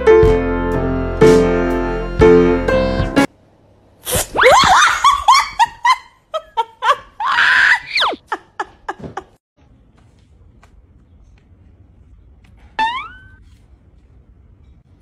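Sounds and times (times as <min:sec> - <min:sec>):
person laughing: 0:04.6 - 0:09.4
person shrieking: 0:07.2 - 0:08.2.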